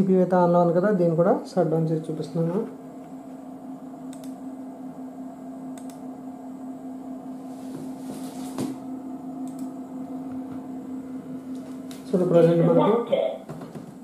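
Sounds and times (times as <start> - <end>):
steady low hum: 0.0 - 14.0
computer mouse clicks: 4.1 - 4.4, 5.8 - 6.0, 9.4 - 9.8.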